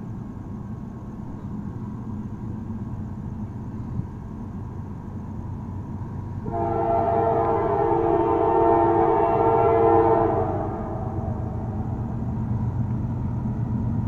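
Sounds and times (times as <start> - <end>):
diesel locomotive engine rumbling: 0.0 - 14.0.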